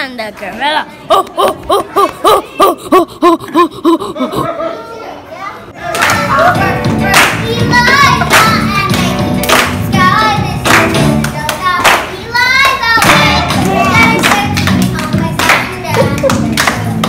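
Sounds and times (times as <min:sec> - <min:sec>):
music: 0:05.9 - 0:17.0
child singing: 0:06.0 - 0:17.0
hand claps: 0:07.1 - 0:09.8, 0:10.6 - 0:12.1, 0:13.0 - 0:17.0.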